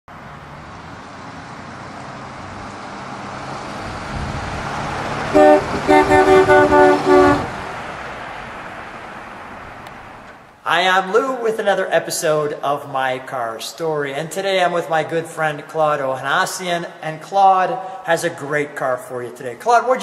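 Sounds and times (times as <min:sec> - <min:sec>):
car engine driving past: 0:00.1 - 0:10.6
car horn toots: 0:05.3 - 0:07.6.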